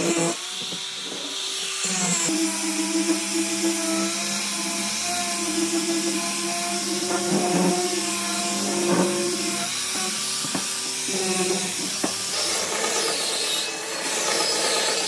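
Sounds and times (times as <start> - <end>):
electric power tool motor: 0.0 - 15.0.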